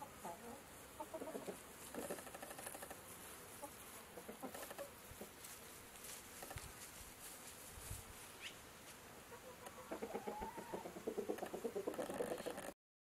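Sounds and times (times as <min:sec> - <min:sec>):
chickens clucking: 0:00.0 - 0:05.5, 0:09.3 - 0:12.8.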